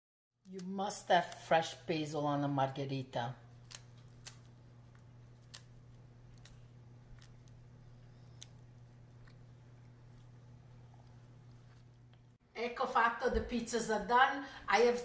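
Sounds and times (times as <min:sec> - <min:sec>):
steady low hum: 0:00.6 - 0:15.0
leaves torn by hand: 0:03.6 - 0:07.6.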